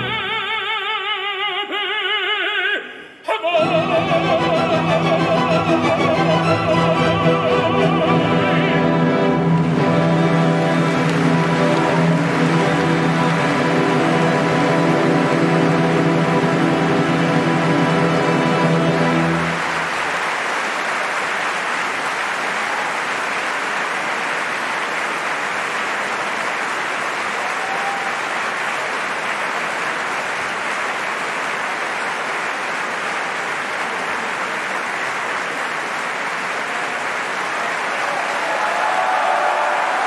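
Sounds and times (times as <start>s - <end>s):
audience applauding: 3.3s - 40.0s.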